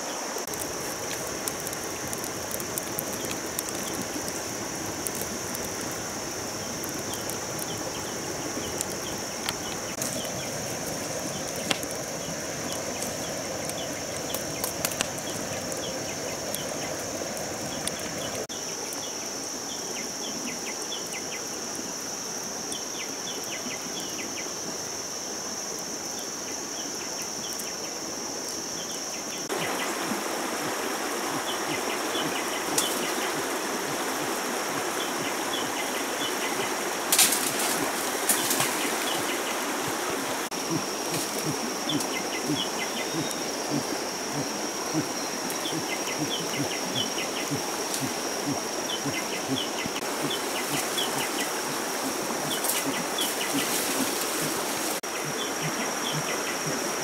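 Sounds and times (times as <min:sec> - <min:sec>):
insects droning: 0:00.0 - 0:57.0
sharp cracks: 0:11.2 - 0:12.1.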